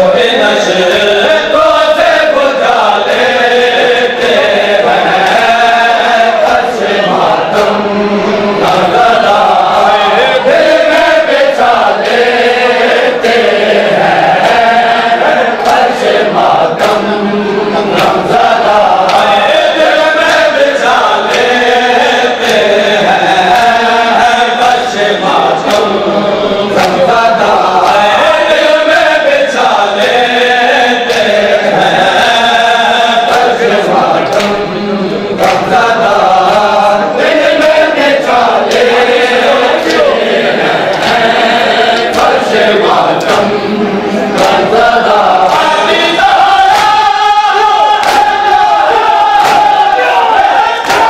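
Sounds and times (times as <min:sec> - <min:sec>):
men chanting a lament: 0:00.0 - 0:51.0
hands slapping bare chests: 0:26.8 - 0:27.0, 0:35.4 - 0:35.7, 0:46.7 - 0:47.1, 0:48.0 - 0:48.5, 0:49.4 - 0:49.8.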